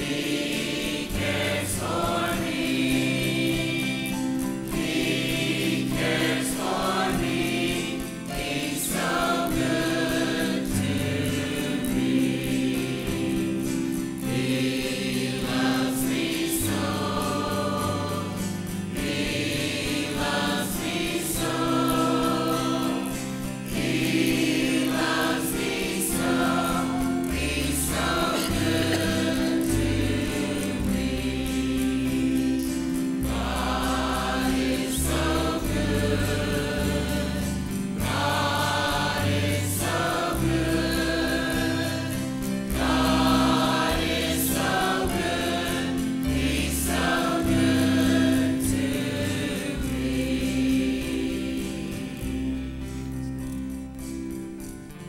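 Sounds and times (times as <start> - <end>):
choir singing gospel: 0.0 - 55.0
band accompaniment: 13.1 - 51.0.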